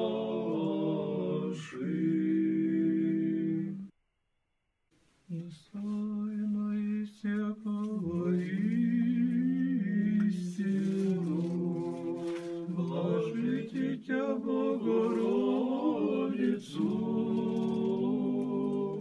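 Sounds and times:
choir chanting a cappella: 0:00.0 - 0:03.9, 0:07.9 - 0:19.0.

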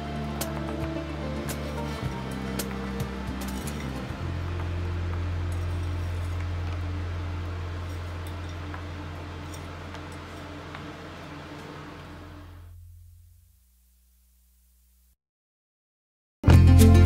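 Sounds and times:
long held low note: 0:00.0 - 0:13.6.

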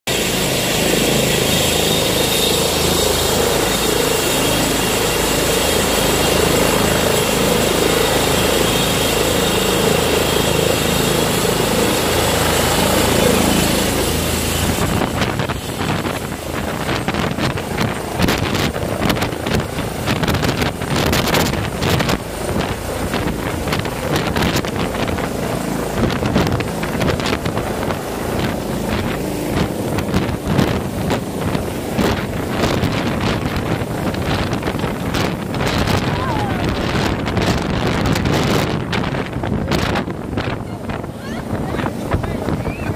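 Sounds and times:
gusty wind across microphone: 0:00.1 - 0:42.9
helicopter rotor noise: 0:00.1 - 0:42.9
helicopter turbine whine: 0:00.1 - 0:42.9.

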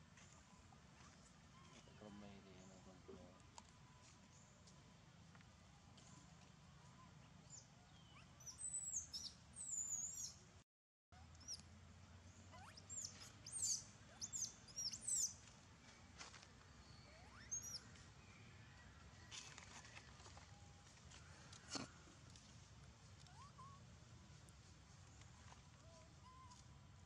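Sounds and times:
faint low background hum: 0:00.0 - 0:10.6, 0:11.2 - 0:27.0
small birds chirping: 0:06.0 - 0:10.4, 0:11.2 - 0:20.1, 0:23.2 - 0:23.8.

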